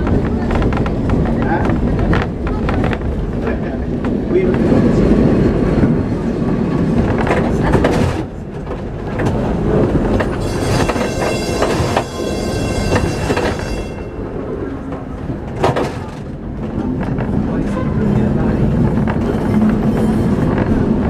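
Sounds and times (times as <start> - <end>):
tram rumbling on rails: 0.0 - 21.0
wheels squealing: 10.2 - 14.4.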